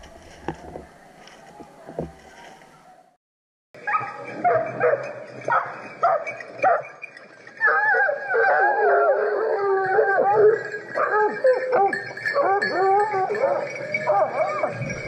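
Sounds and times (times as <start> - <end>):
hounds yelping and baying: 3.8 - 15.0.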